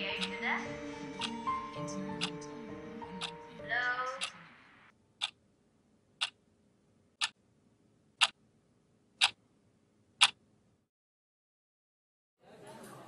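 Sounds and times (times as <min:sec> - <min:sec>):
clock ticking: 0:00.0 - 0:04.4, 0:05.2 - 0:05.4, 0:06.2 - 0:06.4, 0:07.2 - 0:07.4, 0:08.2 - 0:08.4, 0:09.2 - 0:09.4, 0:10.2 - 0:10.4.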